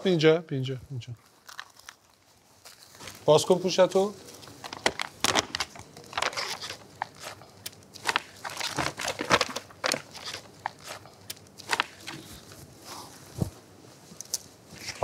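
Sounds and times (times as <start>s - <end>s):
paper rustling and crackling: 1.4s - 7.4s, 8.0s - 13.5s.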